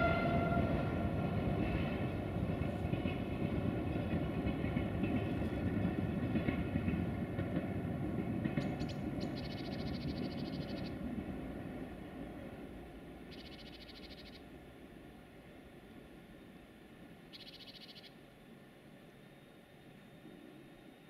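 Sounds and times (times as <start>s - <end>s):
train rumbling past: 0.0s - 21.0s.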